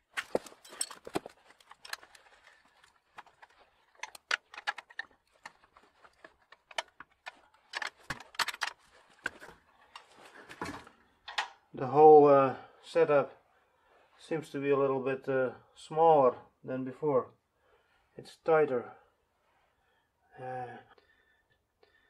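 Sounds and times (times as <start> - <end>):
metallic clicks of wrench and nut: 3.2 - 5.6.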